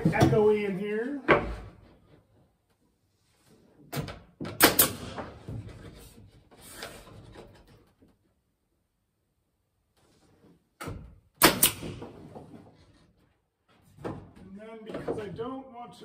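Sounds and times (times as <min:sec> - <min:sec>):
wood scraping and handling: 0:05.4 - 0:08.3, 0:12.1 - 0:15.5.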